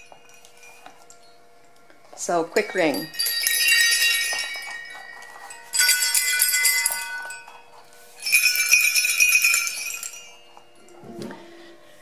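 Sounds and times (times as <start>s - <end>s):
sleigh bells jingling: 2.3s - 11.0s.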